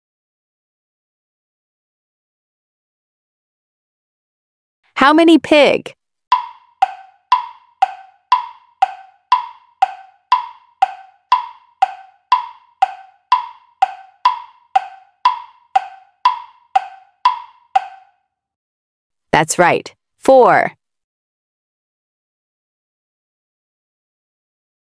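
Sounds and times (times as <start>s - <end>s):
timer tick-tock clicks: 6.3s - 18.1s.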